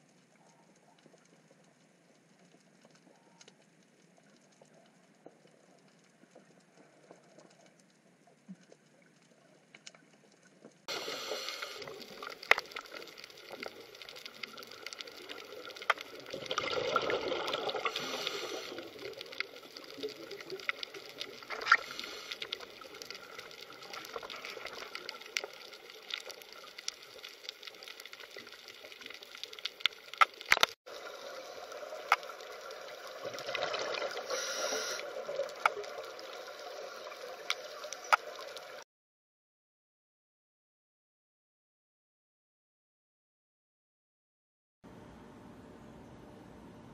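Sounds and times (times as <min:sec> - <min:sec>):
underwater hiss: 0:10.9 - 0:12.5, 0:15.9 - 0:19.5, 0:20.8 - 0:24.9, 0:30.9 - 0:37.9
water rushing and gurgling: 0:10.9 - 0:38.8
underwater clicks: 0:11.6 - 0:30.8, 0:33.2 - 0:36.4, 0:37.4 - 0:38.8.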